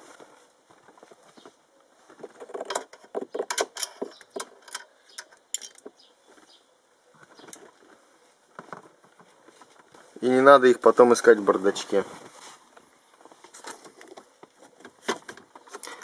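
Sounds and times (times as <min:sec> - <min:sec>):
metal nuts clicking: 0:02.5 - 0:05.9.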